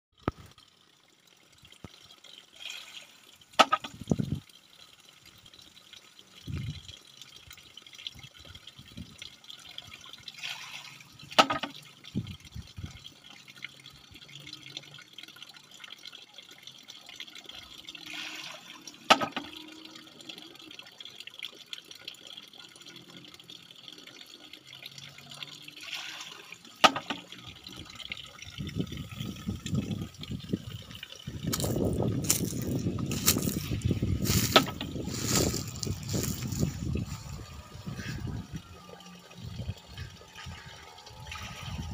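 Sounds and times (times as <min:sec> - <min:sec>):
water trickling: 0:00.1 - 0:41.9
rush of water: 0:02.5 - 0:04.4, 0:08.6 - 0:13.0, 0:17.5 - 0:20.0, 0:24.9 - 0:41.9.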